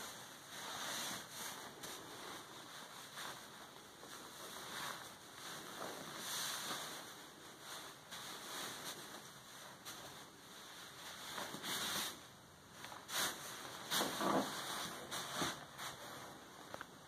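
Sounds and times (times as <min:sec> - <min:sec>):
fabric rustling: 0:00.0 - 0:17.0.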